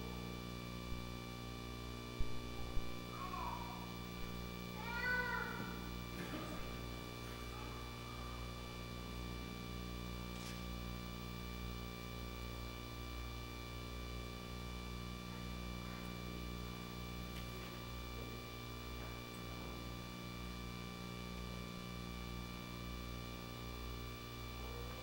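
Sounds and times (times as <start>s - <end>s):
electrical hum and buzz: 0.0s - 25.0s.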